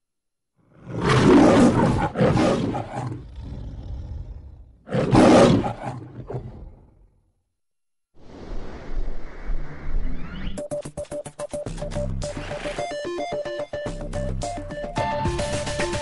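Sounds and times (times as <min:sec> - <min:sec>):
lion roaring: 0:00.6 - 0:07.2.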